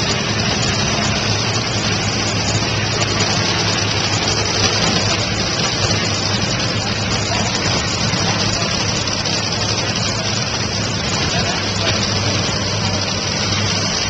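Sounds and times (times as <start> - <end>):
dragster engines idling: 0.0 - 14.0.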